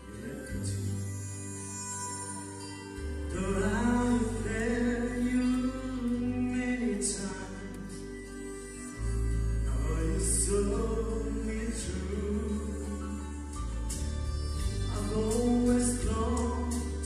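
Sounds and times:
man singing into microphone: 0.0 - 1.8, 3.3 - 8.1, 9.6 - 14.0, 14.8 - 17.0
instrumental accompaniment: 0.0 - 17.0.

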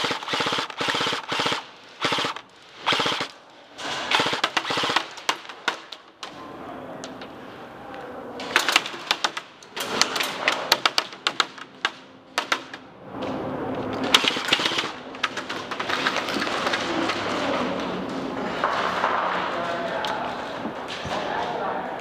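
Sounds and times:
pellets striking wooden barriers: 3.8 - 6.4, 8.4 - 12.9, 14.0 - 17.4.

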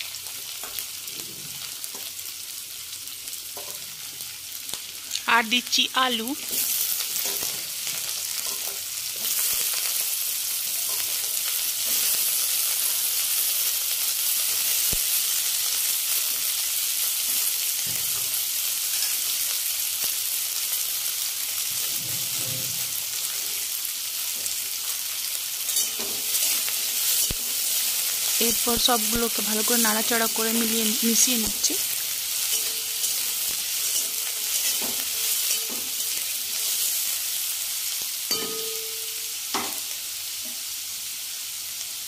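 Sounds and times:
vegetables sizzling in oil: 0.0 - 42.0
spatula scraping a pan: 25.6 - 27.6, 31.9 - 37.1.

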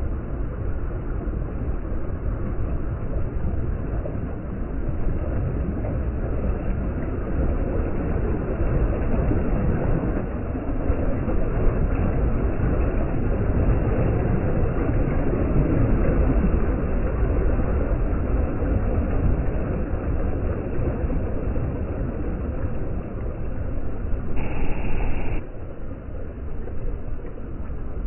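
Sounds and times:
sea waves breaking: 6.4 - 28.0.

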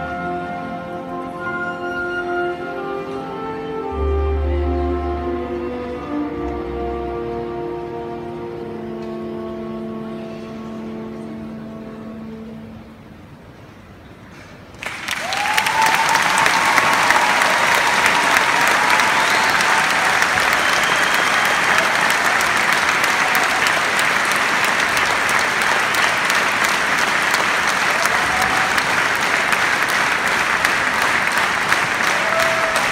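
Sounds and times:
arena audience applauding: 14.7 - 32.9.

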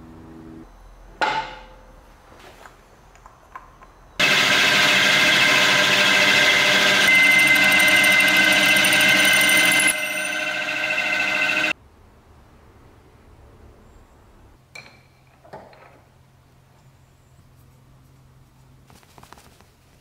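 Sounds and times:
drill bit cutting wood: 4.2 - 11.7
drill press motor hum: 4.2 - 11.7.

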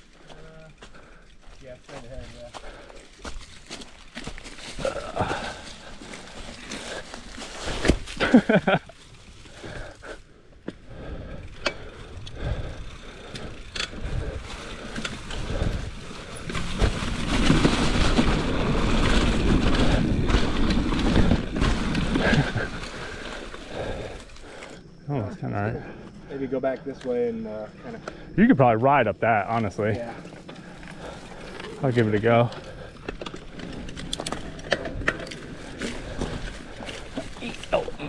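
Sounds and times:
bike tyres on dirt trail: 0.0 - 38.0
bike rattles and knocks: 1.4 - 9.9, 10.6 - 24.7, 29.6 - 38.0.

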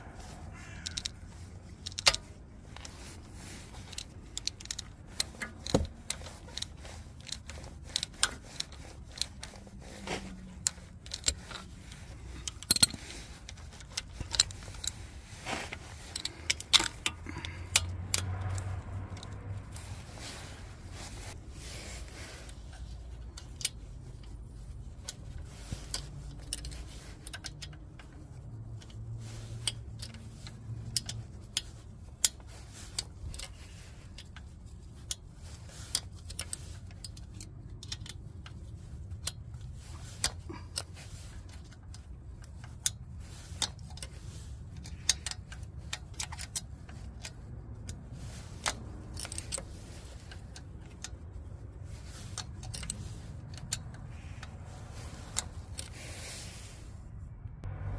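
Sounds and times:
low steady rumble: 0.0 - 57.9
wrench metallic clicks: 0.2 - 56.5.

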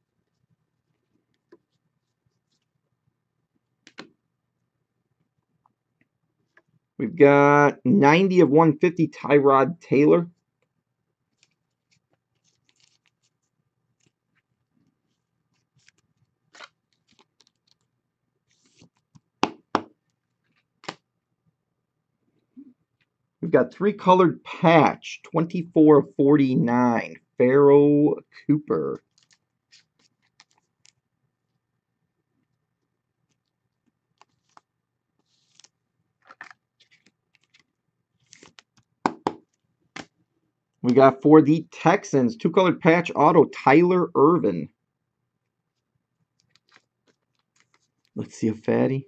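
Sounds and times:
cards clicking and tapping: 3.8 - 4.2, 18.6 - 20.0, 20.8 - 21.0, 34.2 - 40.2
plastic sleeve crinkling: 11.3 - 14.4, 15.1 - 17.9, 29.0 - 31.0, 33.2 - 39.7, 46.3 - 48.2
cards sliding against cards: 35.2 - 35.7.

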